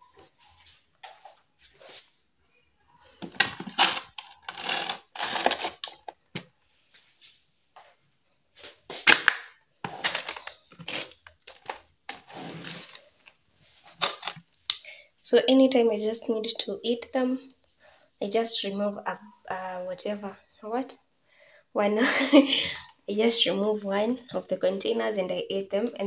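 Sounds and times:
plastic crinkling: 3.2s - 6.4s, 9.0s - 14.8s
plastic scraping and knocking: 3.2s - 6.6s.

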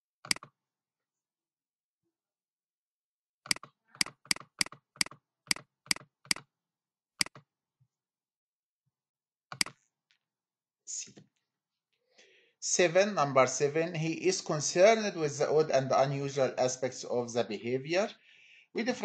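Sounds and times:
mouse and keyboard clicks: 0.2s - 0.5s, 3.5s - 6.5s, 7.2s - 7.4s, 9.5s - 9.8s.

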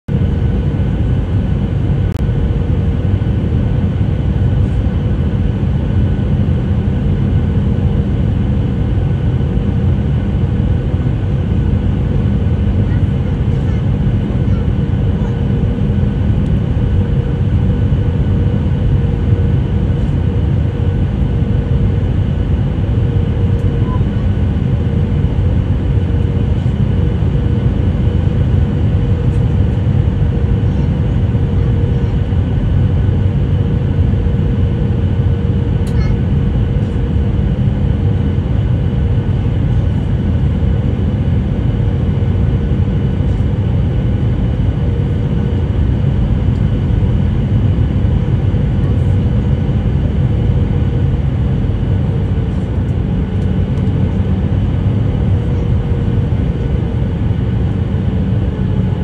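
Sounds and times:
airliner cabin rumble: 0.1s - 59.0s.

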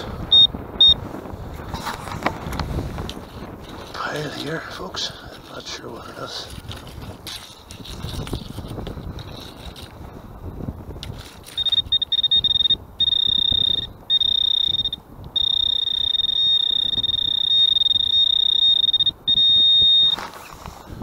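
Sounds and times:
metal detector high-pitched tone: 0.3s - 1.0s, 11.4s - 20.5s.

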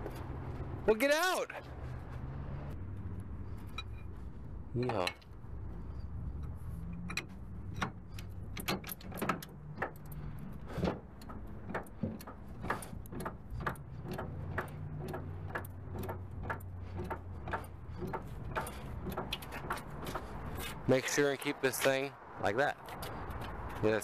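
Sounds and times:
metallic clicks and clanks: 4.8s - 22.1s.

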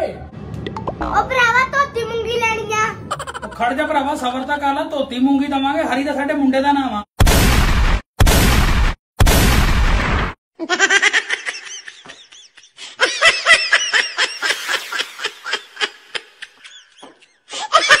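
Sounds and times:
high-pitched laughter: 3.0s - 3.7s, 10.6s - 18.0s.

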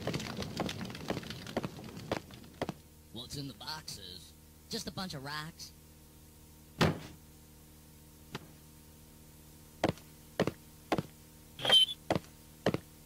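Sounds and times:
constant low hum: 0.0s - 13.0s
dull thud: 6.8s - 7.2s.

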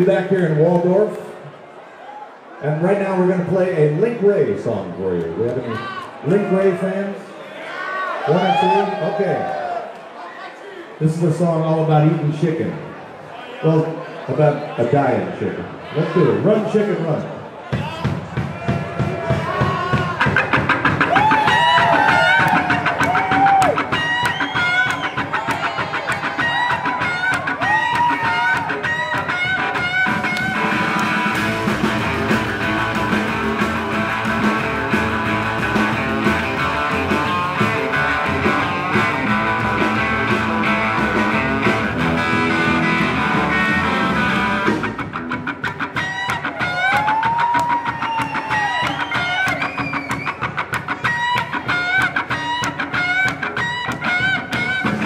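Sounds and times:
rockabilly band playing: 17.7s - 55.0s
electric guitar lead with bends: 20.2s - 46.9s, 49.2s - 55.0s.

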